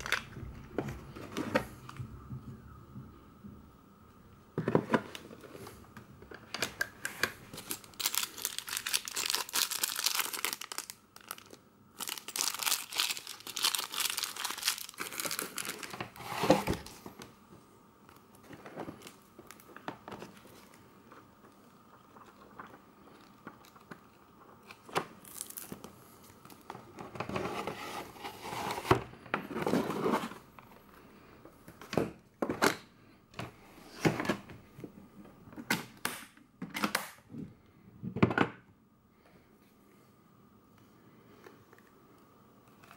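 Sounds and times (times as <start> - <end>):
paper crinkling: 7.5 - 17.0.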